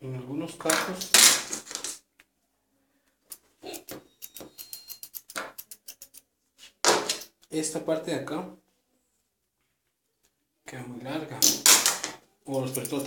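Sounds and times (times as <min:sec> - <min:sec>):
scissors snipping hair: 0:03.3 - 0:06.3, 0:12.5 - 0:13.0.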